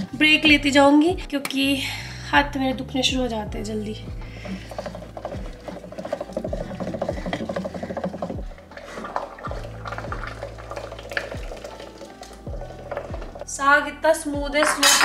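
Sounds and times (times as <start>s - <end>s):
wooden masher scraping in pot: 4.4s - 13.7s.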